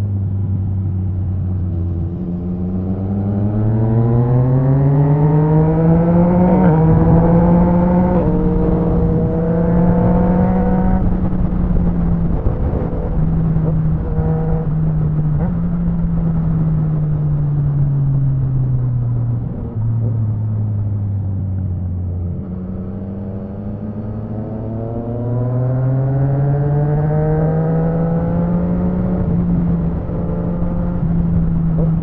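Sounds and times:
motorcycle engine revving: 0:00.8 - 0:17.2, 0:21.8 - 0:32.0
wind rushing: 0:02.4 - 0:15.2.

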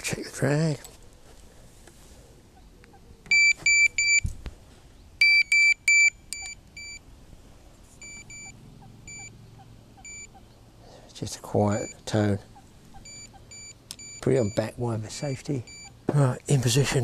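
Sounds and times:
electronic alarm short beeps: 0:03.3 - 0:04.3, 0:05.2 - 0:07.0, 0:08.0 - 0:09.3, 0:10.0 - 0:10.3, 0:11.7 - 0:12.0, 0:13.0 - 0:14.7, 0:15.3 - 0:16.0.

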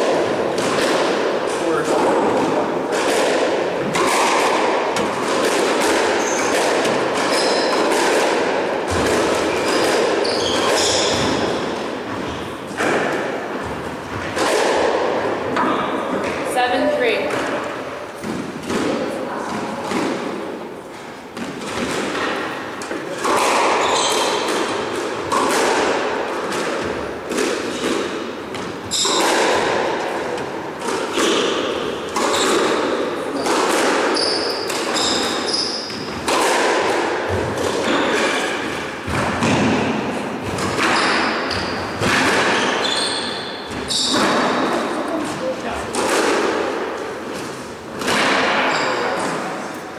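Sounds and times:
racquet striking squash ball: 0:00.0 - 0:49.9
shoes squeaking on wooden floor: 0:06.1 - 0:08.0, 0:08.9 - 0:12.9, 0:22.1 - 0:24.9, 0:28.5 - 0:29.3, 0:30.3 - 0:36.1, 0:40.5 - 0:45.7.

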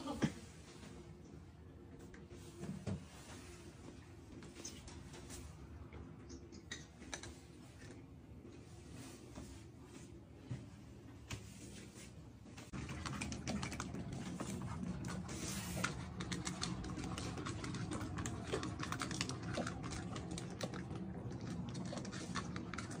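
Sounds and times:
cats eating from bowls: 0:01.7 - 0:08.8, 0:12.7 - 0:23.0.

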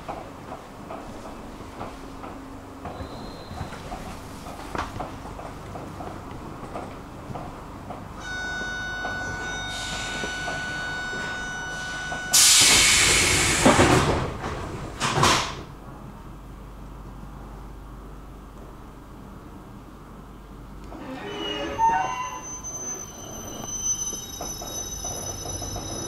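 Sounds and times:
train low rumble: 0:00.0 - 0:26.0
train door warning tone: 0:08.2 - 0:13.6, 0:21.0 - 0:26.0
pneumatic doors hissing: 0:11.8 - 0:14.1.

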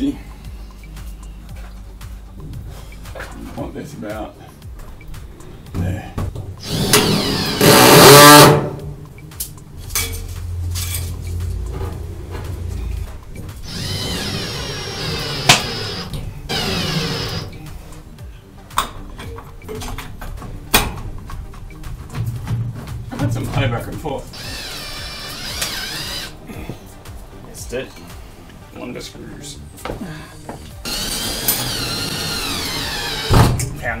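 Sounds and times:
cordless drill driving screws into wood: 0:06.6 - 0:08.7, 0:13.6 - 0:17.5, 0:24.4 - 0:26.4, 0:30.9 - 0:33.6.

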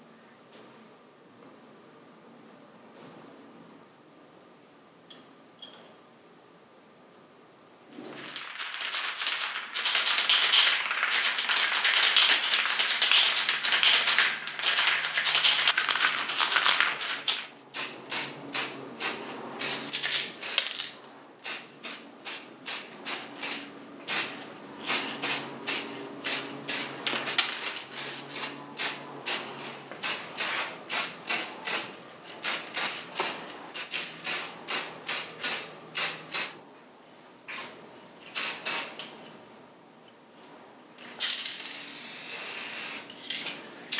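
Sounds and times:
spray paint can hissing: 0:08.3 - 0:20.8, 0:21.4 - 0:36.6, 0:38.4 - 0:39.0.

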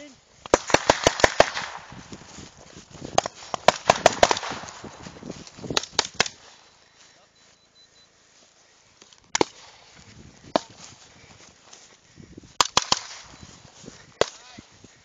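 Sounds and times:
rifle shots: 0:00.5 - 0:01.9, 0:03.5 - 0:04.9.

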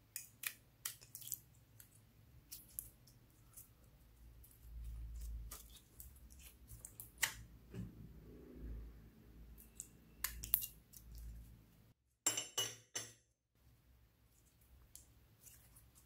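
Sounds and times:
sticky crackles: 0:00.1 - 0:07.5.

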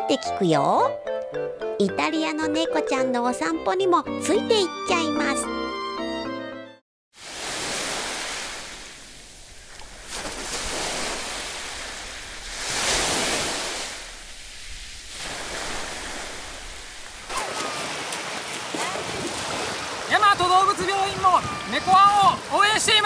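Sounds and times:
swimmer splashing in shallows: 0:07.2 - 0:21.8
small waves washing onto beach: 0:07.2 - 0:23.0.

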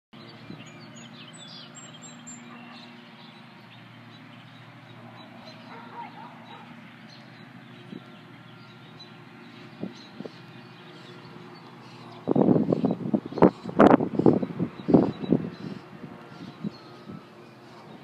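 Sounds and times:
birds chirping: 0:00.2 - 0:18.0.

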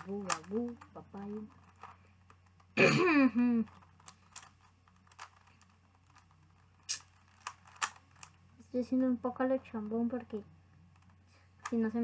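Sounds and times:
puzzle layers clicking: 0:00.0 - 0:02.8, 0:03.5 - 0:08.4.

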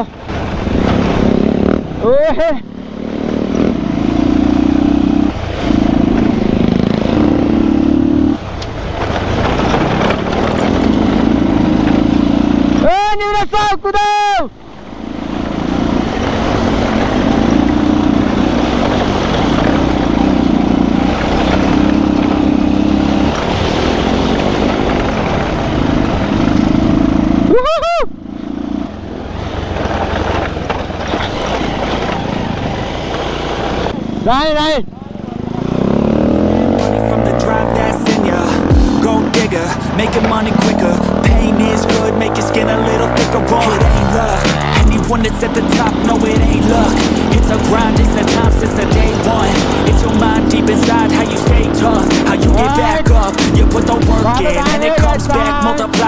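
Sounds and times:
rough rushing noise: 0:00.0 - 0:02.1, 0:02.7 - 0:12.9, 0:35.6 - 0:56.0
motorcycle engine revving: 0:00.0 - 0:12.9, 0:14.7 - 0:56.0.

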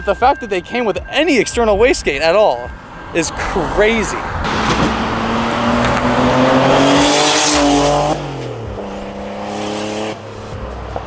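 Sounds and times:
car engine accelerating: 0:01.7 - 0:11.0
exhaust pops: 0:04.3 - 0:08.7.

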